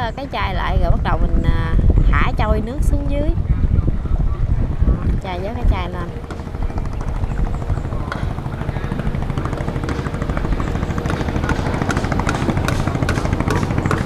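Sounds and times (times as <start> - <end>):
boat engine running: 0.0 - 14.0.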